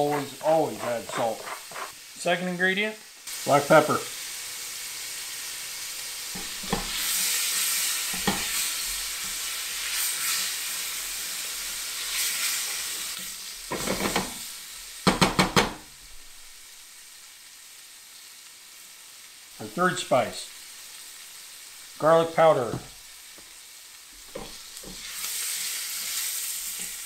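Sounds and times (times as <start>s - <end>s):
vegetables sizzling in oil: 0.0s - 27.0s.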